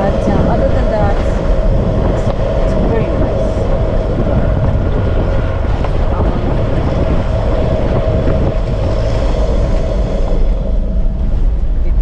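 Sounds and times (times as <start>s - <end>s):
vehicle driving on dirt road: 0.0s - 12.0s.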